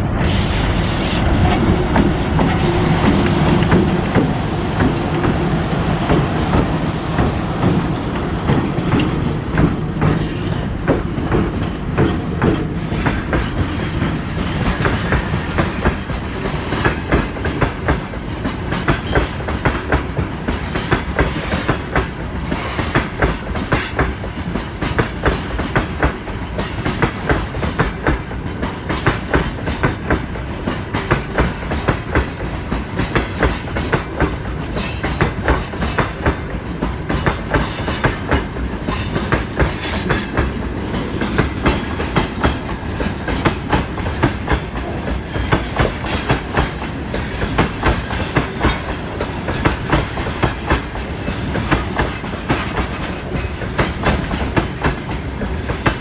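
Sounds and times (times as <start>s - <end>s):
train rolling rumble: 0.0s - 56.0s
wheels clattering over rail joints: 1.3s - 22.1s.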